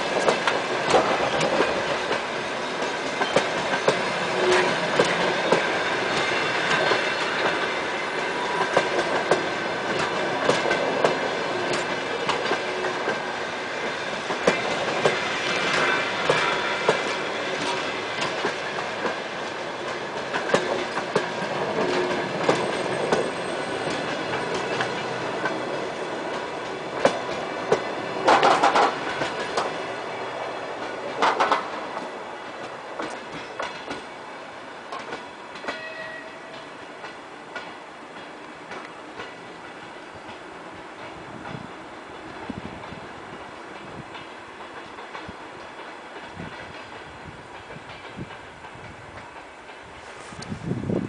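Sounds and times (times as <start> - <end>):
train wheels clicking over rail joints: 0.0 - 51.0.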